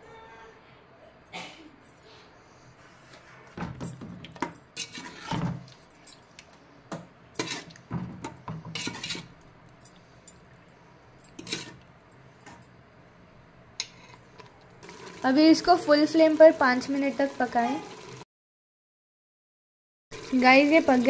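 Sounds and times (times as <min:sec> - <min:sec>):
spoon scraping metal pot: 0:04.8 - 0:05.4, 0:07.4 - 0:07.8, 0:08.7 - 0:09.4, 0:11.3 - 0:11.8.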